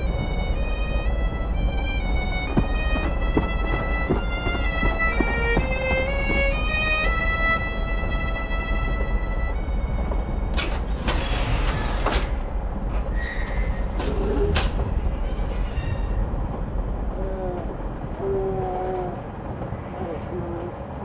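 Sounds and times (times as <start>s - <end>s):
train carriage rumbling: 0.0s - 21.0s
short gliding squeaks: 11.1s - 14.6s.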